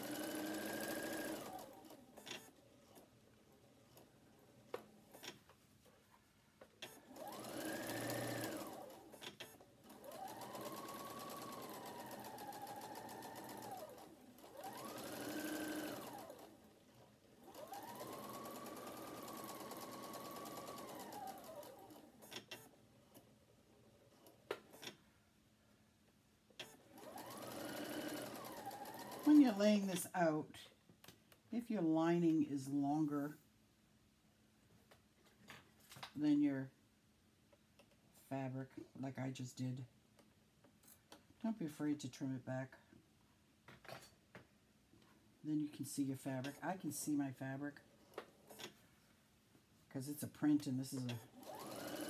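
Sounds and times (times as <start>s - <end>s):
sewing machine motor whine: 0.0s - 2.0s, 7.0s - 9.2s, 9.8s - 16.6s, 17.4s - 22.2s, 26.8s - 29.6s, 51.3s - 52.0s.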